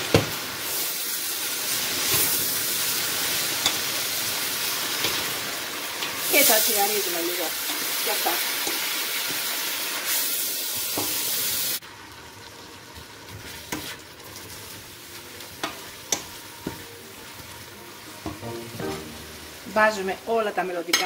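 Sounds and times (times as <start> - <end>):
greens sizzling in oil: 0.0 - 21.0.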